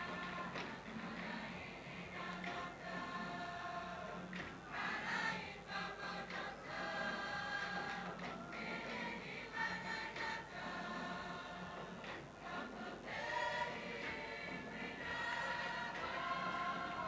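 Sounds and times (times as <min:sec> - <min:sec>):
group singing in chorus: 0:00.0 - 0:17.0.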